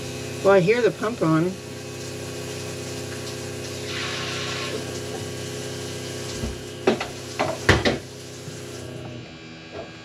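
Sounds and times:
electric pump motor humming: 0.0s - 10.0s.

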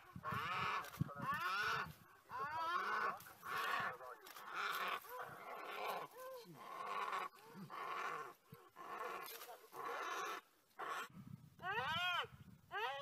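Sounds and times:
animal harsh rasping cries: 0.0s - 13.0s.

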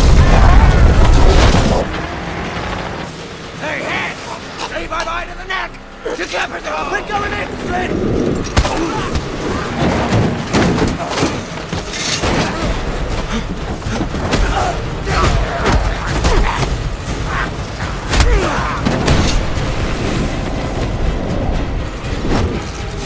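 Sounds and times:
booms and crashes: 0.0s - 1.9s
sandstorm rumble: 0.0s - 11.7s, 16.8s - 23.0s
music: 0.0s - 23.0s
car engines: 0.6s - 14.1s.

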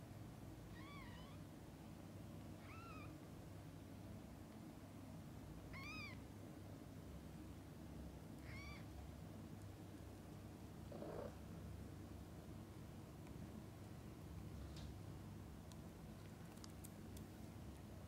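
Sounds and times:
kitten mewing: 5.7s - 6.2s, 8.4s - 8.9s.

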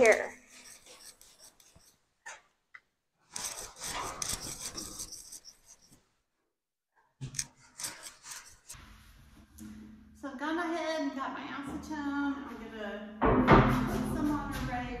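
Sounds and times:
broom scrubbing against steel: 0.0s - 2.1s, 3.2s - 6.0s, 7.4s - 9.5s.

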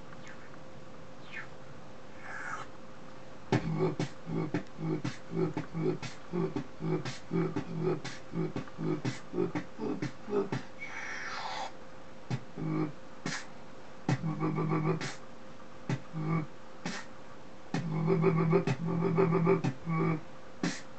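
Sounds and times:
person beatboxing: 3.5s - 13.5s, 14.1s - 15.2s, 15.9s - 17.1s, 17.7s - 20.9s.

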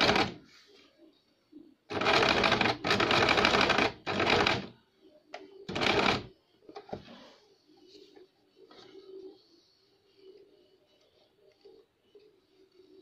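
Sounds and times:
electric sewing machine stitching: 1.9s - 4.7s.

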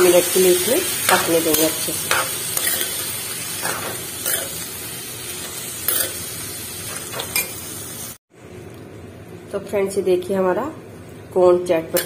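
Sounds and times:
food sizzling in pan: 0.0s - 8.2s.

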